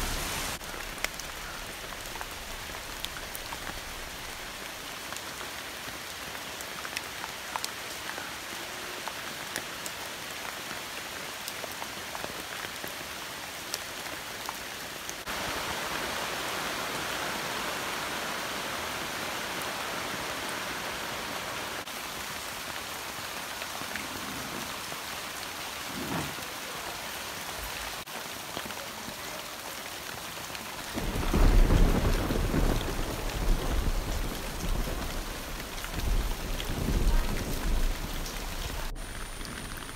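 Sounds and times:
rain falling on leaves: 0.0s - 39.9s
rumble of thunder: 30.8s - 39.9s.

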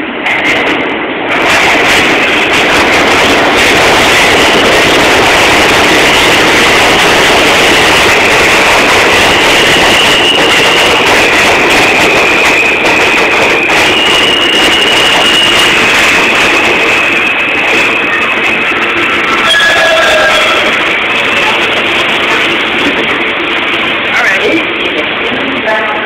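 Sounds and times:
train wheels rumbling on rail: 0.0s - 26.0s
high-pitched wheel squeal: 8.0s - 21.6s.

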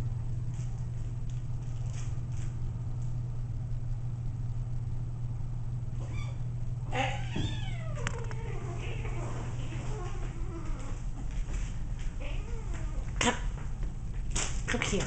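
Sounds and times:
steady low hum: 0.0s - 15.0s
kitten meowing: 7.1s - 9.1s.

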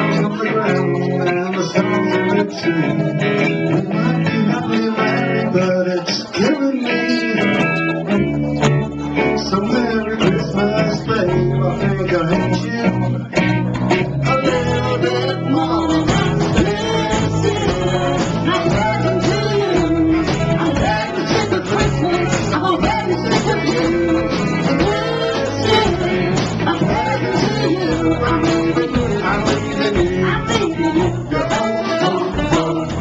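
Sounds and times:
electric guitar: 0.0s - 33.0s
live band playing pop song: 0.0s - 33.0s
drums: 7.2s - 33.0s.

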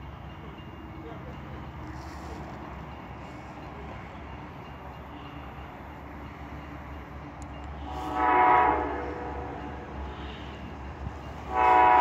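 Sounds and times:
locomotive horn blast: 7.8s - 10.7s, 11.4s - 12.0s.

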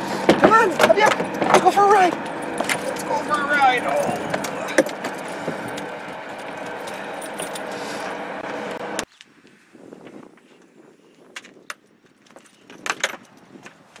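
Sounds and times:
steady background noise: 0.0s - 9.2s
leash clip metal jingling: 3.9s - 7.8s.

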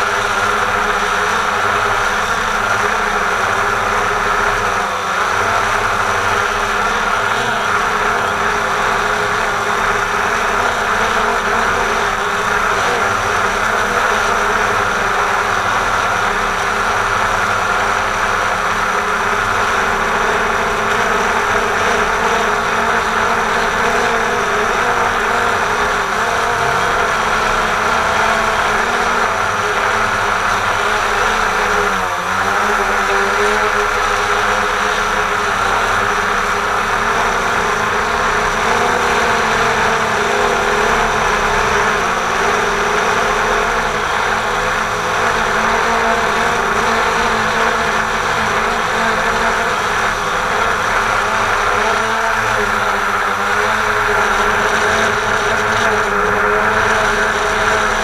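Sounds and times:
drone propellers whirring: 0.0s - 58.0s.

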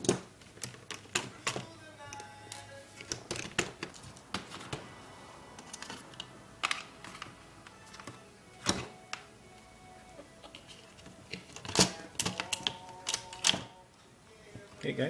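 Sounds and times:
plastic laptop parts clicking: 11.3s - 13.7s.

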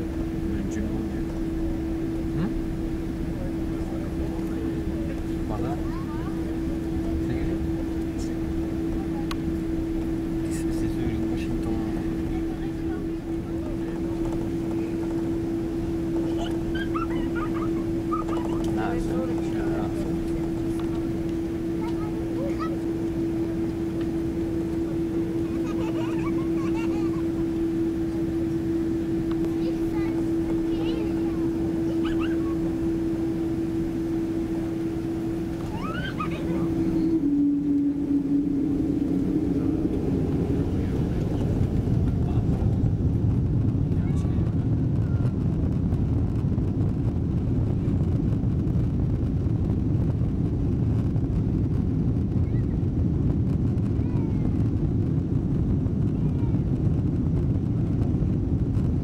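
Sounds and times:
aircraft engine drone in cabin: 0.0s - 59.0s.

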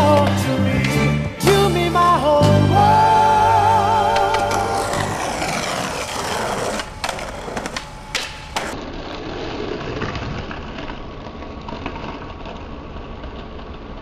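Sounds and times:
person singing: 0.0s - 5.6s
skateboard wheels rolling on concrete: 0.0s - 14.0s
skateboard clacking on concrete: 4.1s - 8.8s.

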